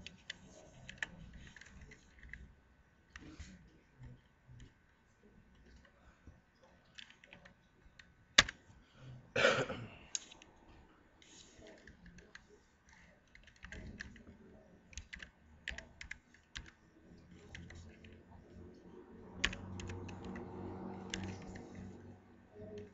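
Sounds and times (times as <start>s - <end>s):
keyboard typing clicks: 6.9s - 8.6s, 11.6s - 18.2s, 19.4s - 22.0s.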